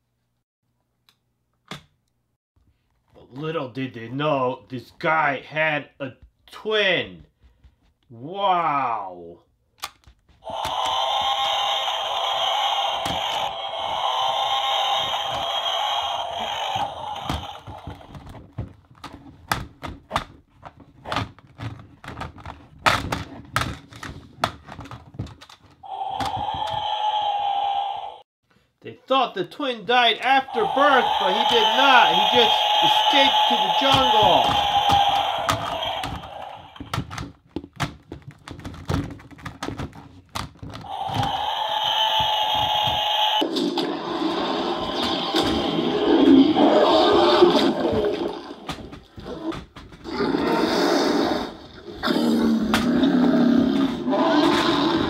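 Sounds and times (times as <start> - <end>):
plastic toys clacking together: 18.1 - 26.7, 33.9 - 41.3
steady droning sound: 30.4 - 36.3.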